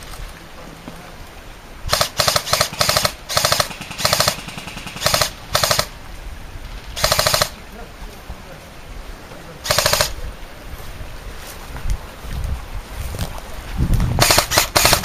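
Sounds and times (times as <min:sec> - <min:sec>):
airsoft rifle bursts: 0:01.9 - 0:05.9, 0:07.0 - 0:07.6, 0:09.6 - 0:10.2, 0:14.2 - 0:15.0.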